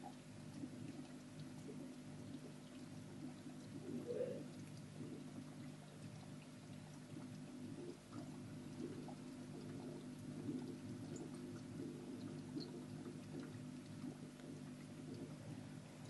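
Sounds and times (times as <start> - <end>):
water trickling: 0.0 - 16.0
bubbles popping at surface: 7.0 - 15.7.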